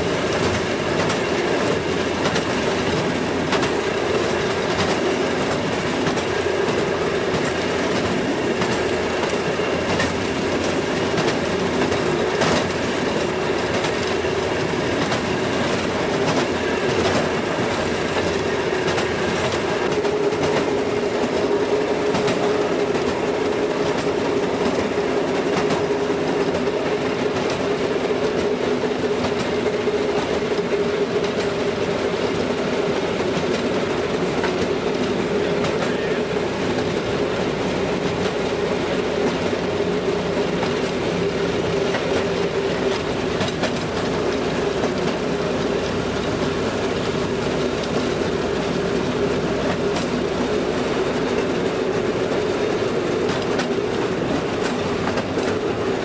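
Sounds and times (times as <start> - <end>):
rail motorcar engine drone: 0.0 - 56.0.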